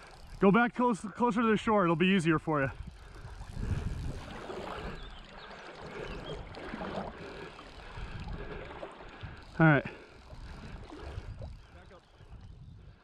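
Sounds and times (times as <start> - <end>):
river water flowing: 0.0 - 12.4
wind rumble on microphone: 2.5 - 9.6, 10.3 - 13.0.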